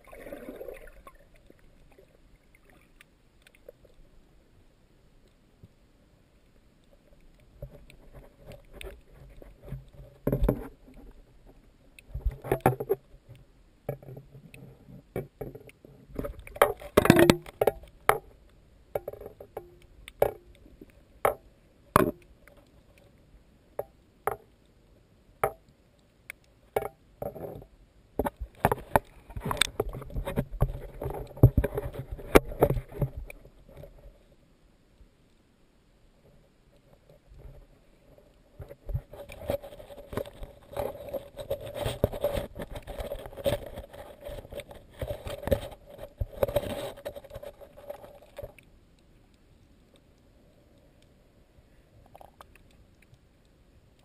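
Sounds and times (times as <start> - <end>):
muffled underwater water movement: 0.0 - 54.0.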